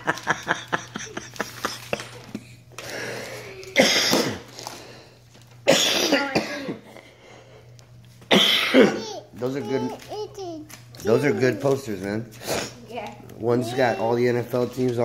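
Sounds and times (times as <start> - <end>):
wrapping paper crackling: 0.0 - 3.8, 9.3 - 15.0.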